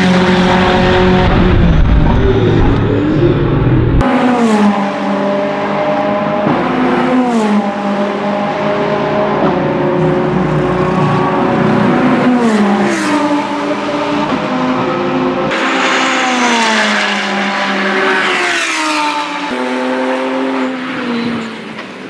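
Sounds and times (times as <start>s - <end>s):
race car engines accelerating: 0.0s - 22.0s
race car passing close: 0.0s - 22.0s.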